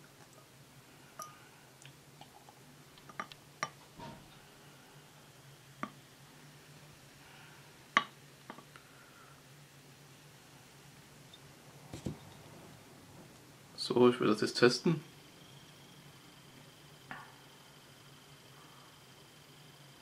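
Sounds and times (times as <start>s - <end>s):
glass and bottle clinking: 1.2s - 1.4s.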